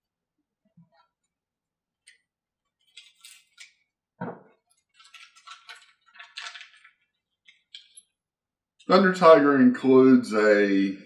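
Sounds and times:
plastic packet crackling: 0:04.9 - 0:07.0.

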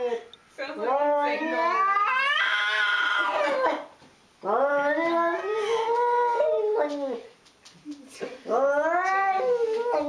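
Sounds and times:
cat yowling: 0:01.2 - 0:03.6.

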